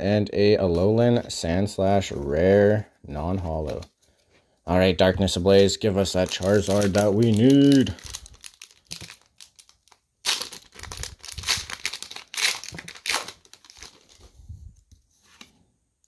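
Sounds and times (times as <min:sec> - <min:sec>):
foil wrapper crinkling and tearing: 0:05.5 - 0:14.3.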